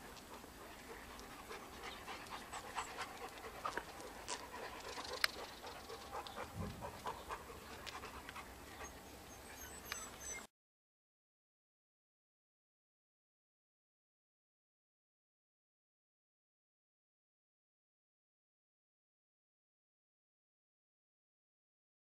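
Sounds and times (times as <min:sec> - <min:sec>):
dog panting: 0:00.0 - 0:10.5.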